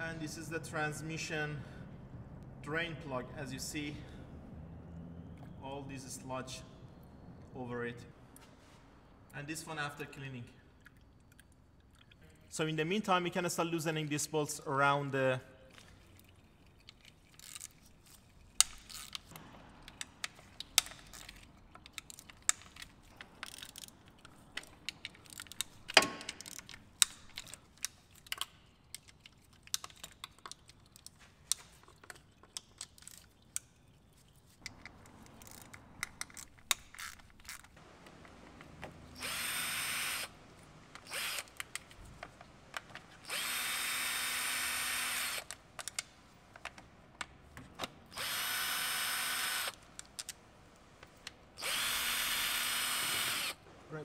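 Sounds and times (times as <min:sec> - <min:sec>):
socket ratchet clicking: 0:17.3 - 0:31.6, 0:41.0 - 0:42.0
cordless drill driver running: 0:39.1 - 0:40.4, 0:41.0 - 0:41.6, 0:43.1 - 0:45.5, 0:48.1 - 0:49.8, 0:51.6 - 0:53.6.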